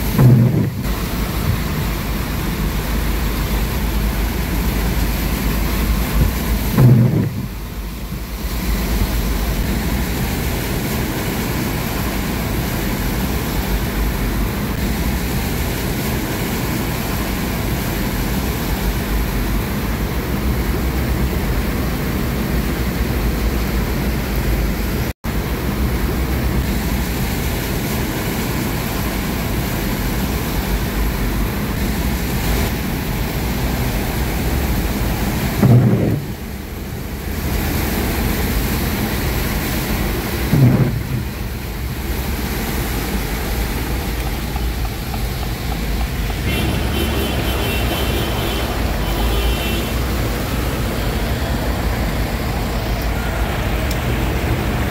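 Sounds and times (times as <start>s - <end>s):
low rumble: 0.0s - 10.4s, 39.0s - 46.4s
wind buffeting microphone: 0.0s - 10.7s, 31.9s - 36.6s, 37.3s - 46.5s
heavy rain falling: 0.0s - 54.9s.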